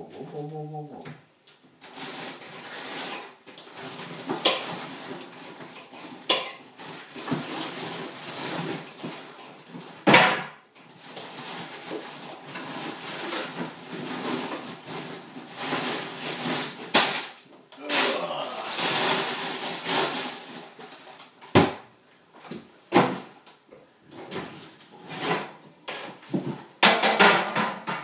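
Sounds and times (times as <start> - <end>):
dishes and cutlery clattering: 5.8 - 6.7.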